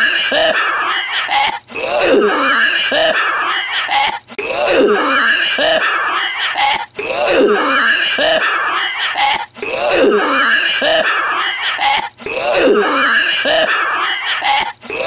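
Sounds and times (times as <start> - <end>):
man's hacking cough: 7.6 - 15.0.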